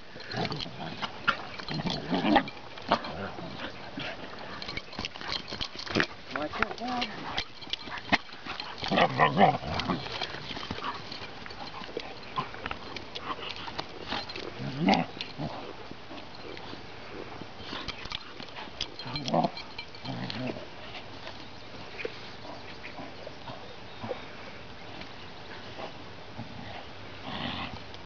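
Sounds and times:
puppy play-growling: 0.2 - 21.1, 25.8 - 27.8.

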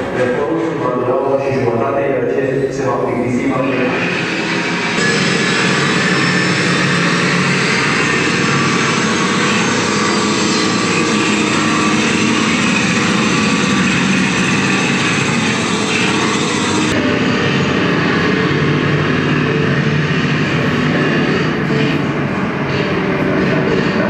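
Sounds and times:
grinders running: 3.7 - 22.0
jackhammers: 3.8 - 21.9.

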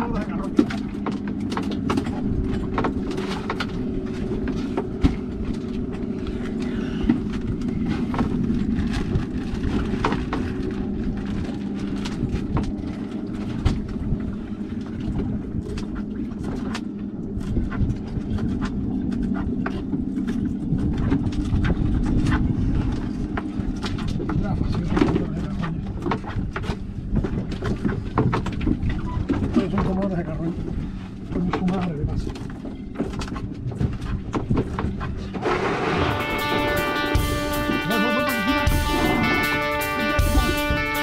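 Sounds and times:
outboard motor idling: 0.0 - 41.0
wind and sea rumble: 0.0 - 41.0.

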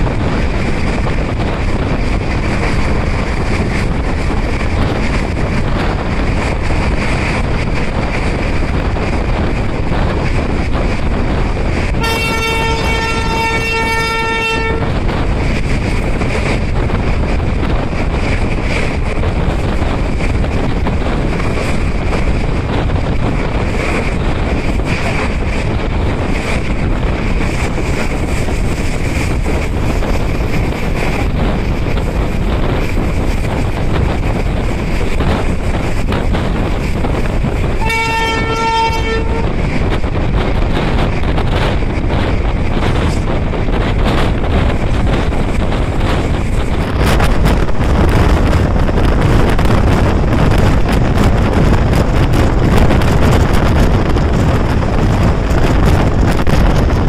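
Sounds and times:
train rumble and wind noise: 0.0 - 57.0
locomotive horn blast: 12.0 - 15.0, 37.8 - 39.6.

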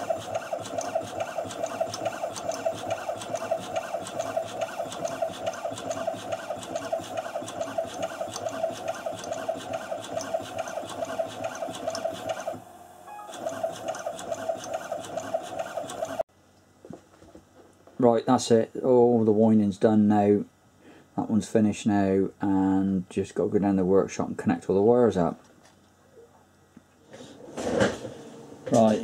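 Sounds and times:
coil-winding machine motor whine: 0.0 - 16.2.

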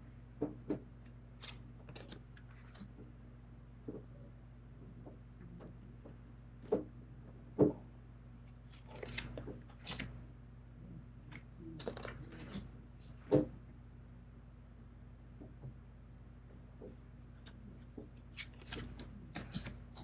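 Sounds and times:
cards rustling and sliding: 8.7 - 10.1, 18.3 - 20.0.

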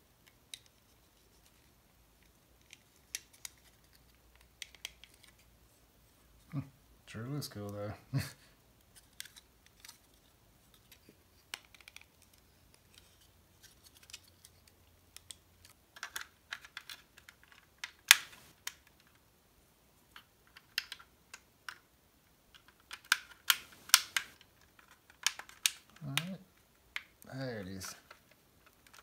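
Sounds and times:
plastic parts clicking: 2.2 - 5.4, 8.8 - 19.2, 20.1 - 21.9, 22.5 - 29.0.

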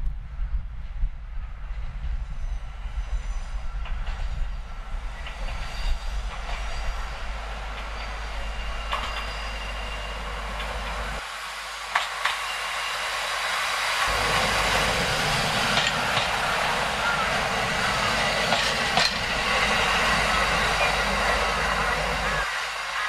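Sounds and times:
diesel railcar running: 0.0 - 23.0
high squeal of wheels: 5.2 - 10.4.

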